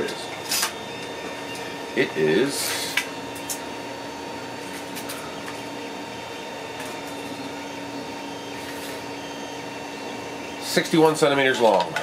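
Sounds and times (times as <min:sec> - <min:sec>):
machine hum: 0:00.0 - 0:12.0.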